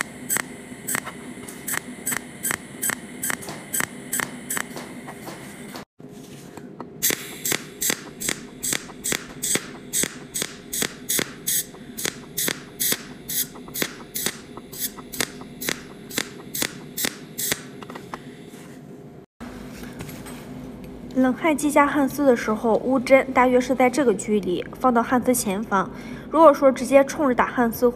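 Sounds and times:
steady low hum: 0.0 - 26.5
welding machine snaps: 7.0 - 17.9.

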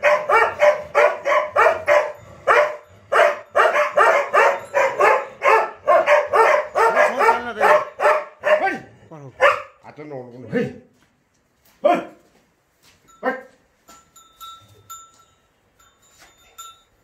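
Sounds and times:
dog barking rapidly: 0.0 - 9.8.

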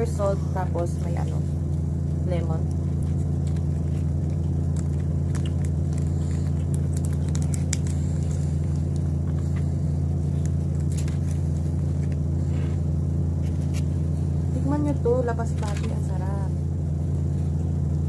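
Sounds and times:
steady low hum: 0.0 - 18.0
seasoning packet crackling: 2.8 - 9.2.

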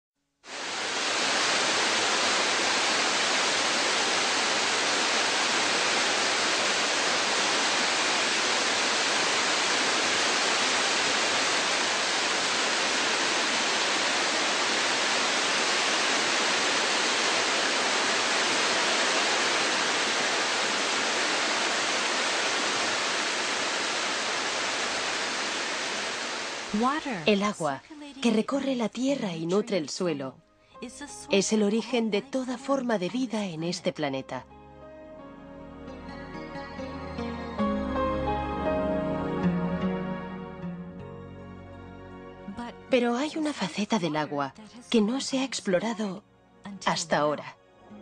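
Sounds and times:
waterfall rushing onto rock: 0.5 - 27.2.

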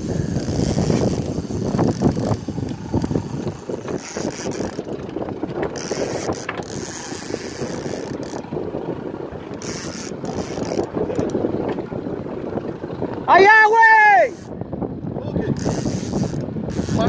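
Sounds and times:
fishing reel whirring: 0.0 - 8.6, 9.5 - 11.5, 14.1 - 14.6, 15.5 - 17.0.

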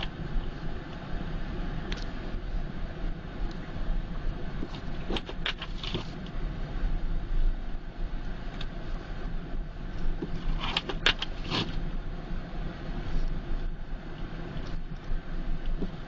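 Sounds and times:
engine and road rumble: 0.0 - 16.0
clicks and scrapes: 4.6 - 6.3, 10.2 - 11.8.

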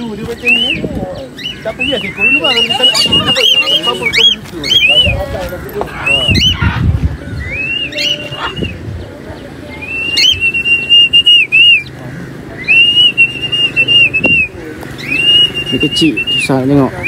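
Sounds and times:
person whistling: 10.0 - 11.8, 12.7 - 14.5.

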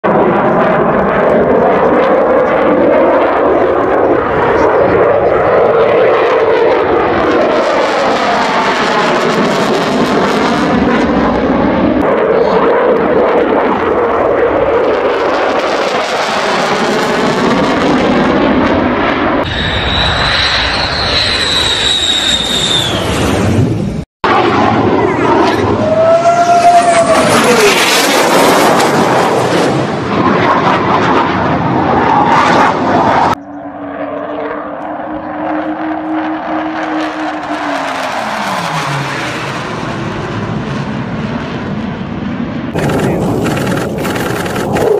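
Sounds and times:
fighter jet in afterburner: 0.0 - 44.9.

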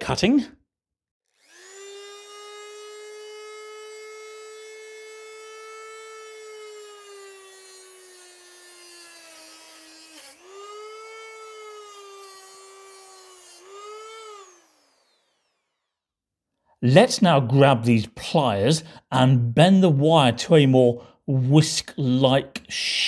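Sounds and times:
rotary tool motor whining: 1.3 - 16.1.

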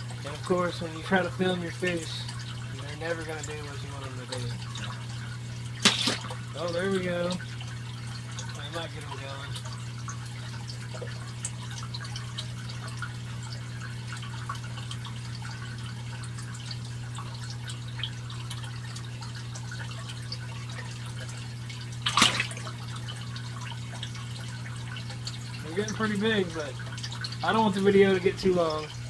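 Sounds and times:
low pump hum: 0.0 - 29.0
water trickling and dripping: 0.0 - 29.0
water splash: 5.6 - 6.7, 21.9 - 23.0.

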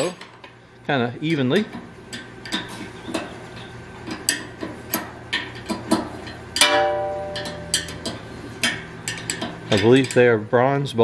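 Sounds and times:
ringing metal clank: 6.6 - 8.1.

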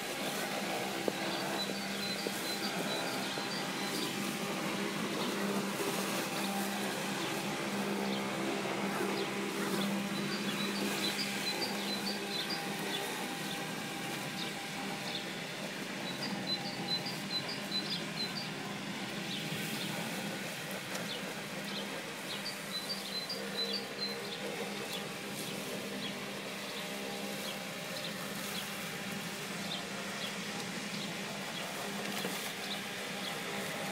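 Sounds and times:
robotic mower buzzing hum: 0.0 - 33.9
bird chirping: 9.1 - 13.1, 16.0 - 18.5, 21.7 - 24.4.

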